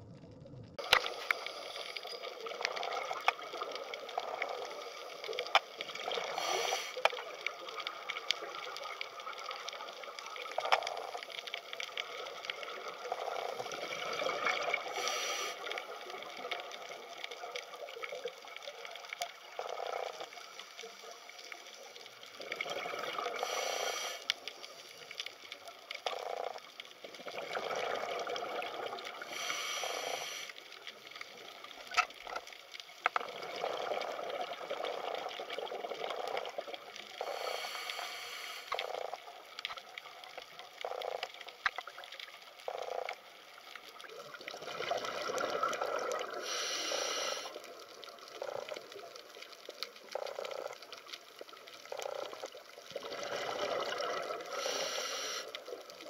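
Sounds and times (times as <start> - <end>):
water bubbling and trickling: 0.0 - 23.6, 24.3 - 29.4, 30.5 - 37.5, 38.6 - 46.6, 47.4 - 54.8, 55.4 - 56.0
small clicks: 30.8 - 33.3.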